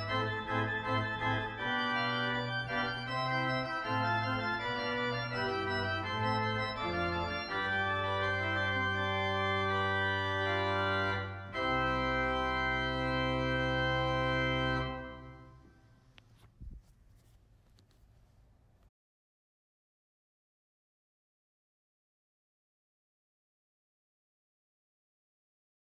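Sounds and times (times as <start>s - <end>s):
organ playing sustained chords: 0.0s - 15.8s
faint room noise: 14.8s - 18.9s.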